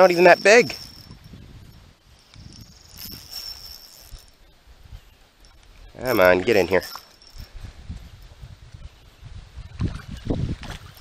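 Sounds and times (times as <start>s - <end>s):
insect high-pitched drone: 0.0s - 4.6s, 5.4s - 7.6s.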